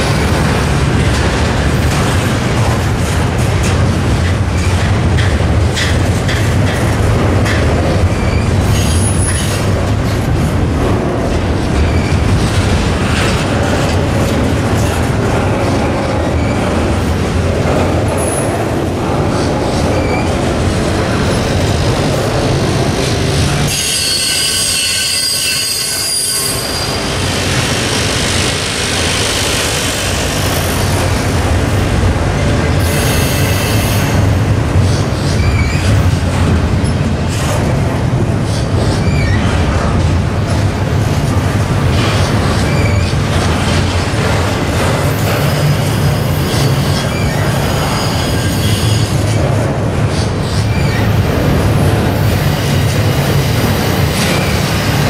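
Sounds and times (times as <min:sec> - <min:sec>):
train wheels rolling on rails: 0:00.0 - 0:55.0
wheel squeal: 0:23.7 - 0:27.1.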